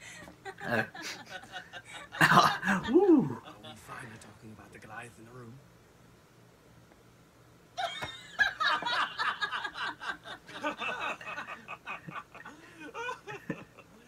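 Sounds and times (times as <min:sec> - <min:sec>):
man laughing: 0:00.5 - 0:03.7, 0:07.8 - 0:14.0.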